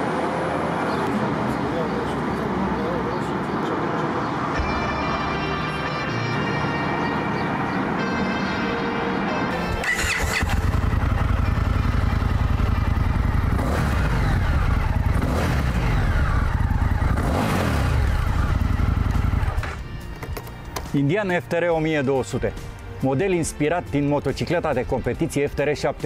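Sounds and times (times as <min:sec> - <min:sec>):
background music: 0:00.0 - 0:12.6, 0:17.2 - 0:26.0
motorcycle engine idling and revving: 0:09.6 - 0:20.1.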